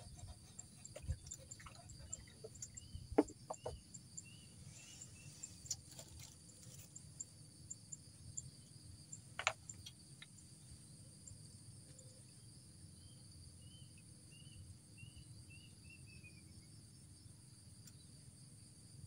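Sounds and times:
faint chirp: 0:00.0 - 0:05.9
insects chirring: 0:00.0 - 0:19.0
knocks on wooden platform: 0:03.1 - 0:03.8.

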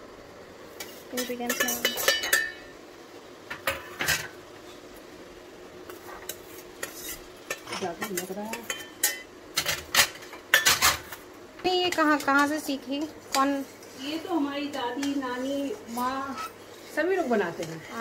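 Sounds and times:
metal bowls clinking on plate: 0:01.2 - 0:02.7, 0:06.8 - 0:11.2.

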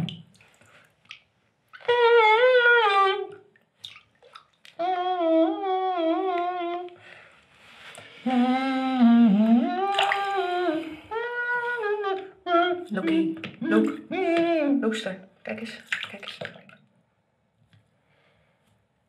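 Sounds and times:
person humming a wavering tune: 0:01.8 - 0:03.4, 0:04.8 - 0:07.0, 0:08.2 - 0:14.8.

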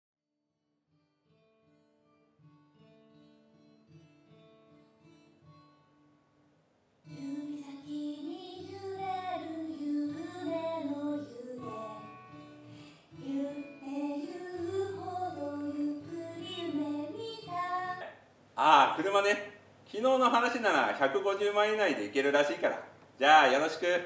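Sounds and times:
soft musical accompaniment: 0:07.1 - 0:18.0.

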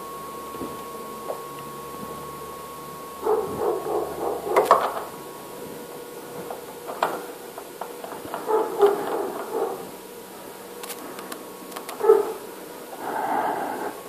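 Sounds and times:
dog whining and yapping: 0:08.4 - 0:09.8.

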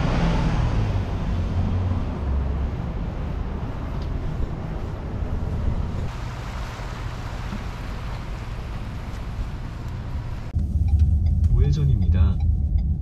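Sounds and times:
car driving along: 0:00.0 - 0:13.0.

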